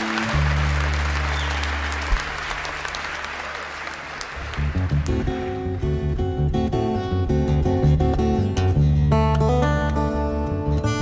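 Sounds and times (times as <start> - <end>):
acoustic guitar playing: 0.0 - 2.2, 4.5 - 11.0
audience applauding: 0.0 - 6.1.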